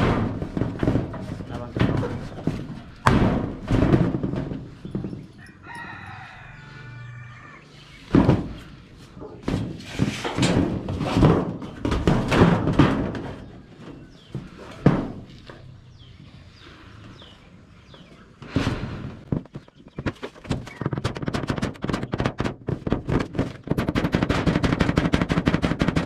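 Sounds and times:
irregular knocks and thumps: 0:00.0 - 0:05.9, 0:08.0 - 0:16.4, 0:17.9 - 0:26.0
rooster crowing: 0:05.3 - 0:07.8.

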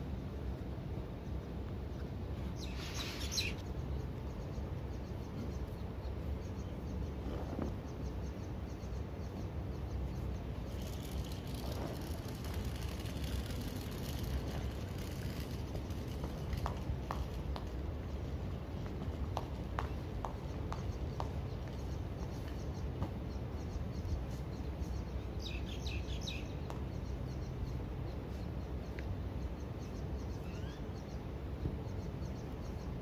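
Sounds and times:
outdoor background rumble: 0:00.0 - 0:33.0
high bird chirp: 0:02.5 - 0:07.2, 0:20.4 - 0:33.0.

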